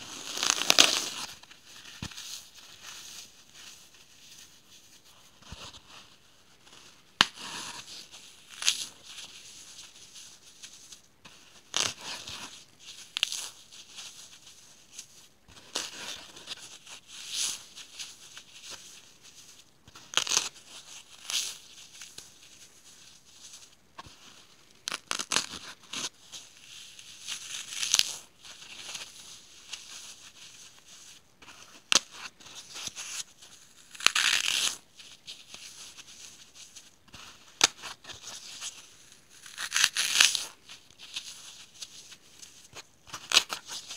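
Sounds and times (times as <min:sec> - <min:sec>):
floral foam crumbling and crunching: 0:00.0 - 0:01.3.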